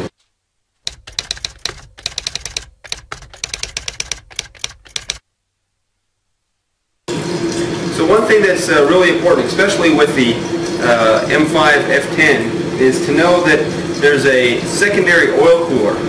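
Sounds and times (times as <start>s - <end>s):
typewriter key clicks: 0.9s - 5.2s.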